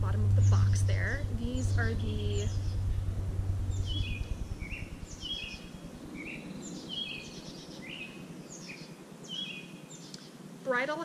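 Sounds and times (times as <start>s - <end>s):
low background rumble: 0.0s - 8.1s
small bird chirping: 0.3s - 10.3s.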